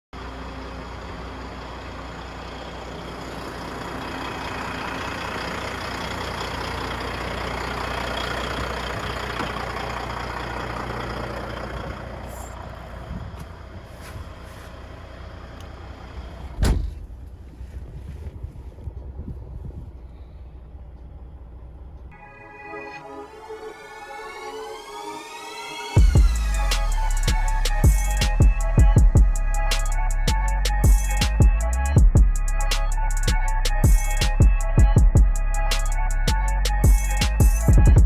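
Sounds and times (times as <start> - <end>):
motor vehicle noise: 0.2 - 23.5, 26.0 - 38.0
loud thump: 16.6 - 17.1.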